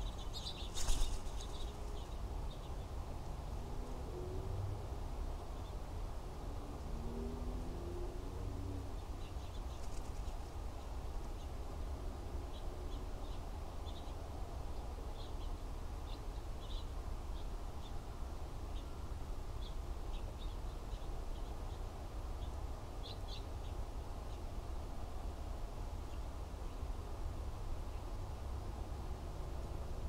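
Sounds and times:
small birds chirping: 0.0 - 3.5, 8.9 - 11.6, 12.5 - 18.0, 18.7 - 24.5.

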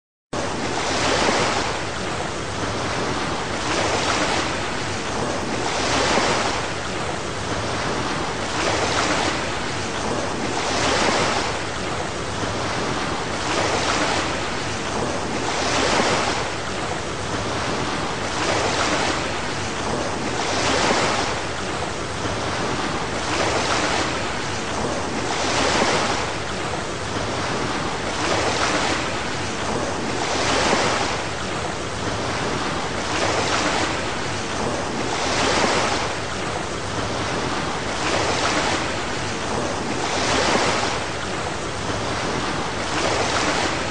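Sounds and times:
ocean surf washing in: 0.4 - 43.9.

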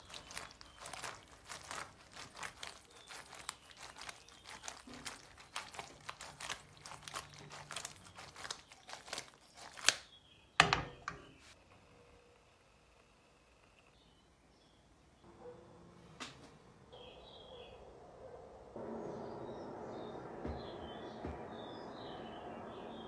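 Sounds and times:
pasta knocking and scraping in a pan: 0.0 - 10.0
pan clunking on burner grate: 10.6 - 11.3.

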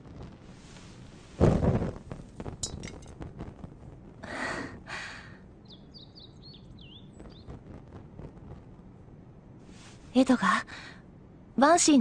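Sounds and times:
whoosh of flame: 0.0 - 4.9, 7.1 - 10.2
hissing fire: 0.0 - 11.0.

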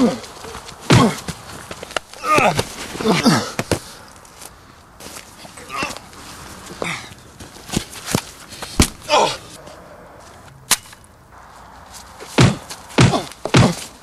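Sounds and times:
heavy blows: 5.5 - 14.0
punch hits: 12.3 - 13.9.

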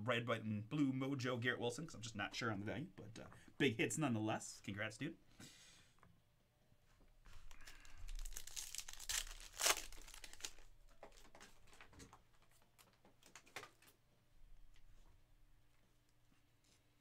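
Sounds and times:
wrapper crinkling and tearing: 7.5 - 14.0.

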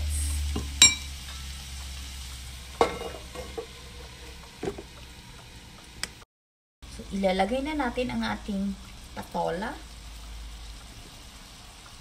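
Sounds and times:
food sizzling in a frying pan: 0.0 - 6.2, 6.8 - 12.0
metal lid knocking onto pan: 2.8 - 3.7.

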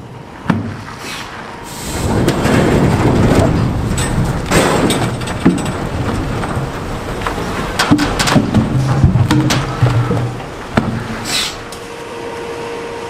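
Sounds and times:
heavy wooden knocks and thuds: 0.5 - 0.8, 2.0 - 11.4
logs rumbling slide: 0.7 - 11.8.

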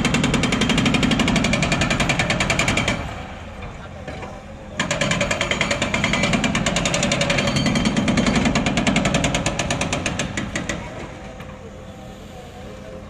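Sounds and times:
concrete breaker hammering: 0.0 - 3.2, 4.8 - 11.2
low steady drone: 11.2 - 13.0.

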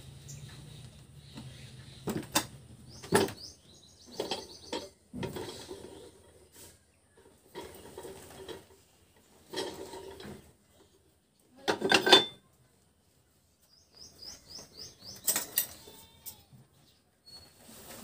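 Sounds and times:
steel parts clanking and scraping: 2.0 - 11.0, 11.6 - 12.4, 15.0 - 16.4.

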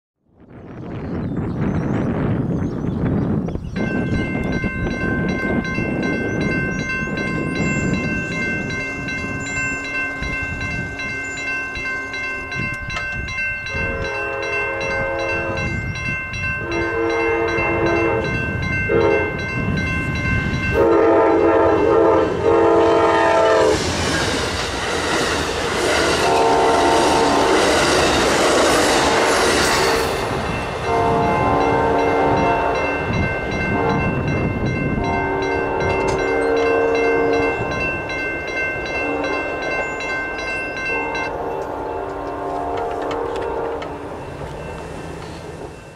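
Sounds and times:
train passing with wheel clatter: 0.6 - 45.9
crossing bell dinging: 3.8 - 24.4, 25.2 - 45.9
locomotive horn blasts: 13.6 - 15.9, 16.6 - 19.5, 20.7 - 23.8, 25.9 - 27.9, 30.8 - 37.8, 38.8 - 39.6, 40.8 - 44.1.

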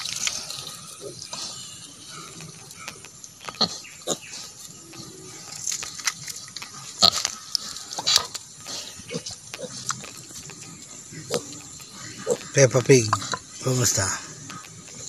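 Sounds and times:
pig grunting: 0.0 - 5.9, 6.6 - 15.0
rustles and clicks: 2.3 - 15.0.

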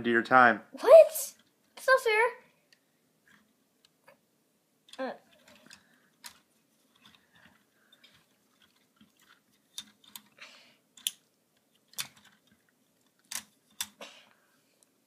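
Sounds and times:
plastic bricks clicking: 4.9 - 10.4, 11.0 - 14.0.

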